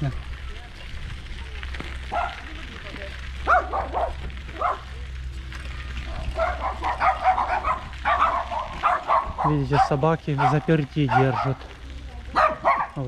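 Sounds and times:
dogs barking: 0:02.0 - 0:02.6, 0:03.4 - 0:05.0, 0:06.0 - 0:13.0.

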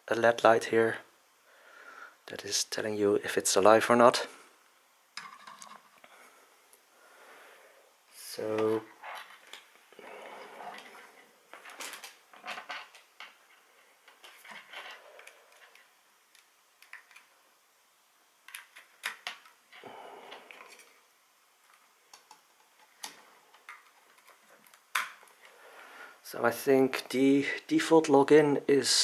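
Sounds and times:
rustling: 0:08.3 - 0:17.3.

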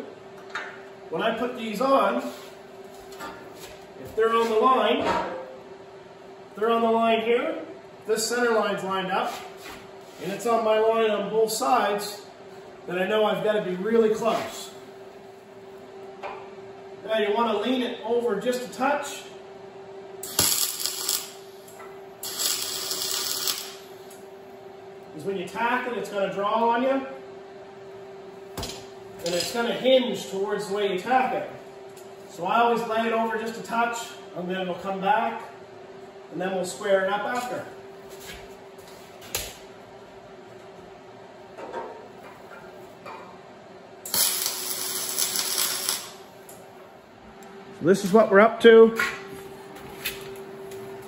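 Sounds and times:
faint steady hum: 0:00.0 - 0:51.0
welding arc crackling hiss: 0:20.2 - 0:24.2, 0:44.0 - 0:46.6.

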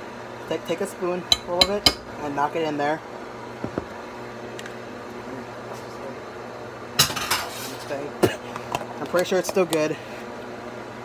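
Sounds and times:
spoon knocking on cooking pot: 0:01.3 - 0:02.1.

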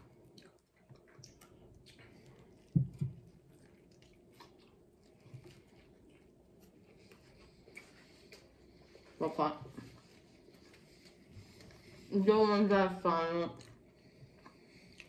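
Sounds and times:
wet chewing mouth sounds: 0:00.0 - 0:09.2, 0:13.5 - 0:15.0.

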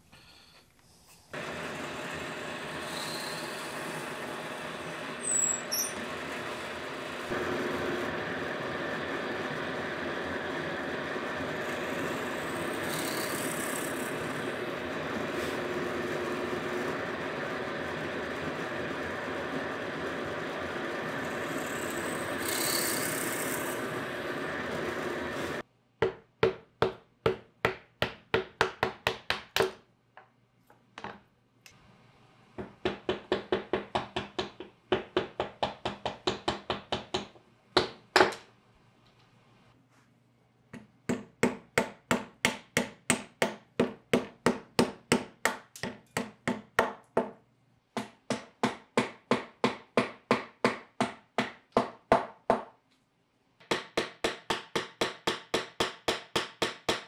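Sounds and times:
drill press running: 0:01.4 - 0:25.6.

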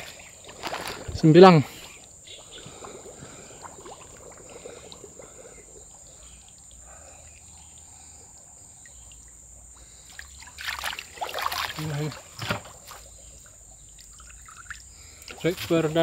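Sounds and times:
high insect drone: 0:00.0 - 0:16.0
trickling water: 0:00.0 - 0:16.0
small ticks: 0:05.7 - 0:10.6.

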